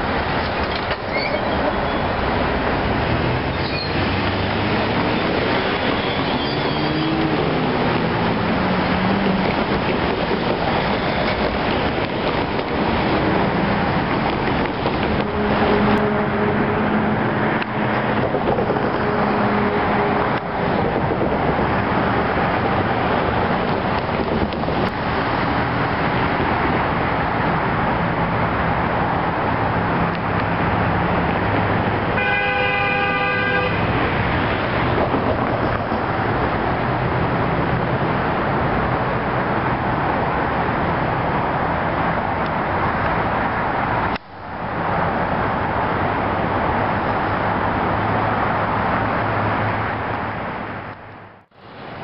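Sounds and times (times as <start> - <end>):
steady rushing background noise: 0.0 - 52.0
locomotive horn blast: 15.0 - 17.5, 18.8 - 20.4, 32.1 - 34.2.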